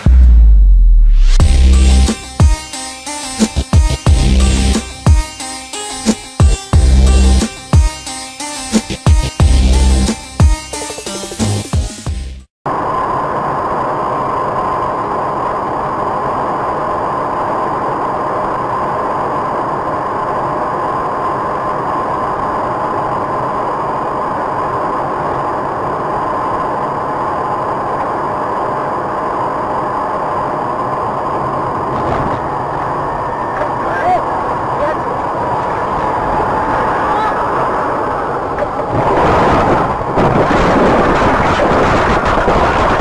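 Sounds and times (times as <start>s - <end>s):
constant high hum: 12.7s - 43.0s.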